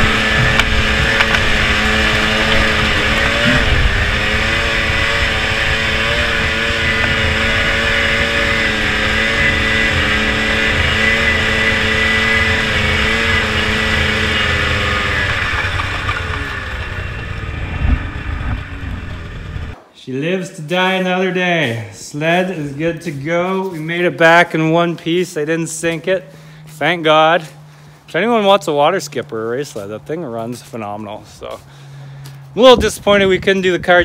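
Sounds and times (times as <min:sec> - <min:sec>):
snowmobile engine running: 0:00.0 - 0:19.8.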